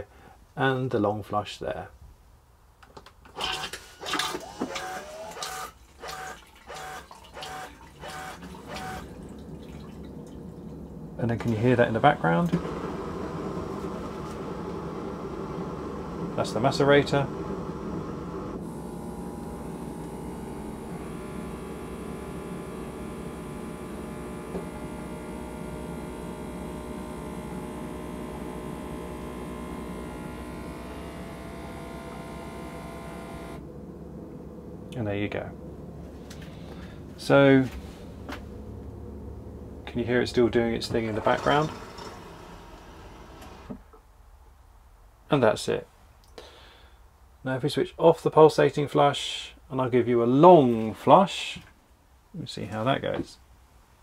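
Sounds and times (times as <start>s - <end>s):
toilet macerator humming: 3.4s - 44.0s
toilet pulsating flush: 3.5s - 18.6s, 40.9s - 43.7s
high-pitched whine: 8.8s - 41.7s.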